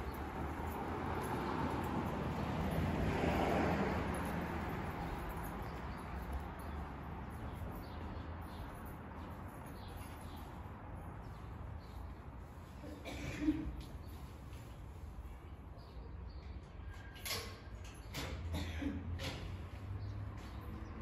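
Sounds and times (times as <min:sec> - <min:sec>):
vehicle passing: 0:00.0 - 0:11.7.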